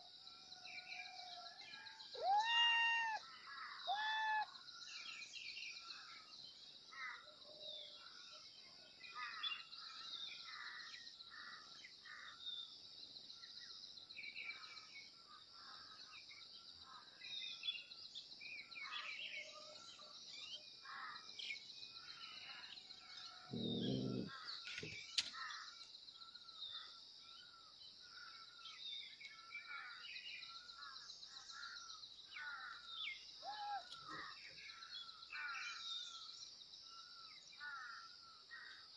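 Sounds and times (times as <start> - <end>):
small birds chirping: 21.3 - 29.6.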